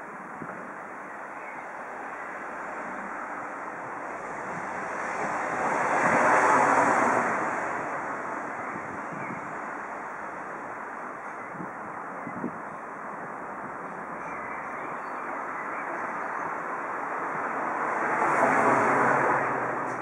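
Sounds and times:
vehicle passing by: 4.2s - 8.4s, 17.4s - 20.0s.

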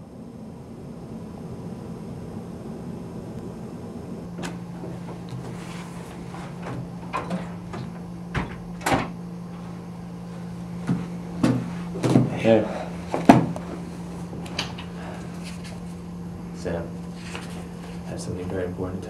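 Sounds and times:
steady low hum: 0.0s - 19.0s
knocks and thuds: 6.3s - 9.2s, 10.8s - 12.4s, 13.1s - 13.6s.

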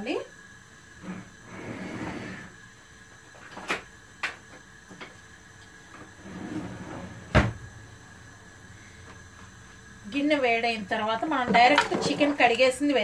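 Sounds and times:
kitchen knocks and clatter: 11.4s - 12.5s.

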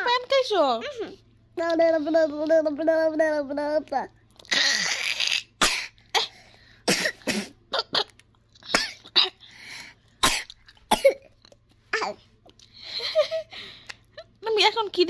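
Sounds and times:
child coughing: 4.5s - 9.4s, 10.2s - 12.2s.

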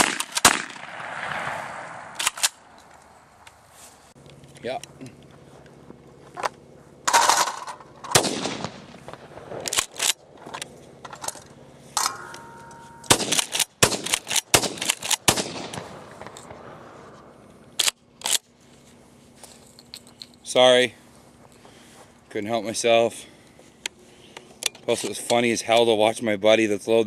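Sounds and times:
shotgun blasts: 0.0s - 2.6s, 8.1s - 10.0s, 13.0s - 16.8s.

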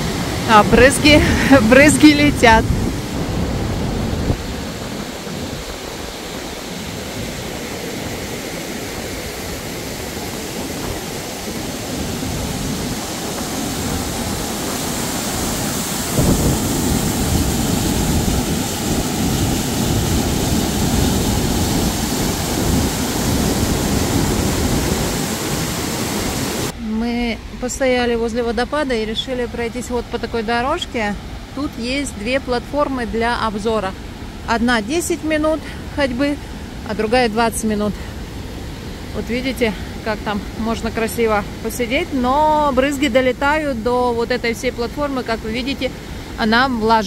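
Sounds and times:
waterfall roaring: 0.0s - 26.8s.

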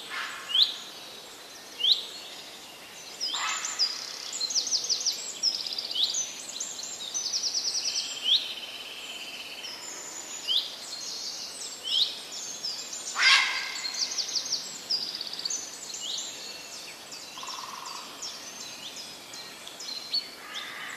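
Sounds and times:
songbirds chirping and trilling: 0.0s - 20.9s
sharp bird call: 13.2s - 14.0s.

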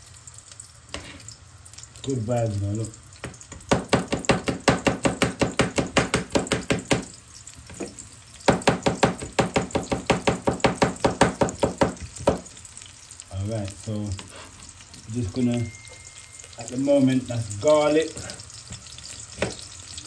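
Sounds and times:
knife chopping on cutting board: 3.7s - 7.1s, 8.5s - 12.5s.

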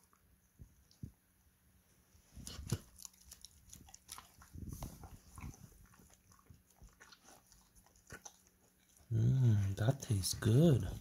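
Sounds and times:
dog chewing wetly: 2.4s - 9.1s.

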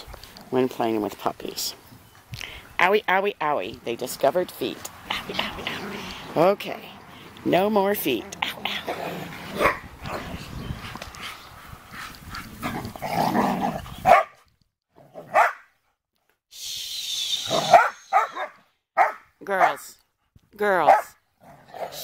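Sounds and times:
dogs barking and yipping: 8.8s - 13.1s, 13.8s - 14.4s, 15.2s - 15.7s, 17.5s - 19.8s.

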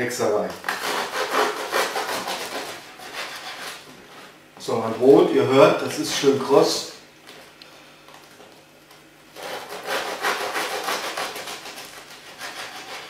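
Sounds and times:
knife sawing crusty bread: 0.7s - 3.8s, 9.4s - 13.0s.

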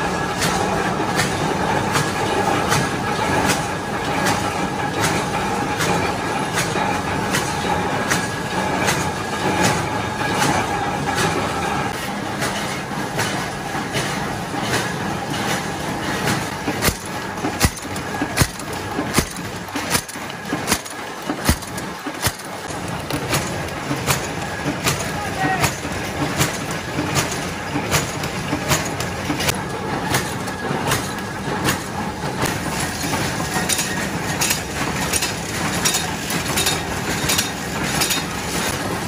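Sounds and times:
machine clattering with knocks: 0.0s - 39.0s.

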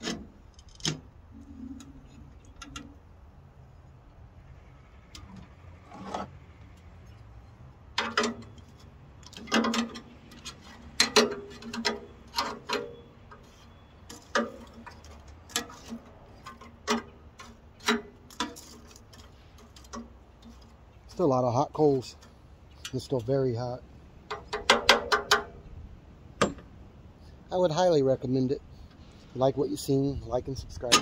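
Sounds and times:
fire poker raking hot coals: 8.4s - 24.7s.

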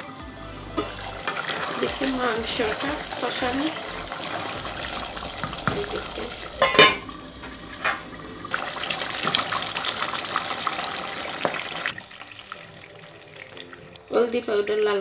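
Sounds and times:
curry simmering and crackling: 0.4s - 15.0s
spoon knocking against pot: 6.6s - 7.1s.

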